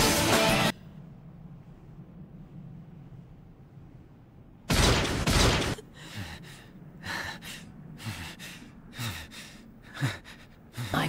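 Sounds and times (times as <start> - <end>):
heavy breathing: 5.8 - 11.0.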